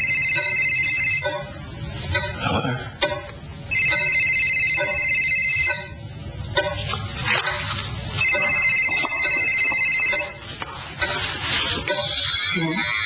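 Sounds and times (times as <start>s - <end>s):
mobile phone ringing: 0.0s - 1.5s, 3.7s - 6.0s, 8.2s - 10.5s.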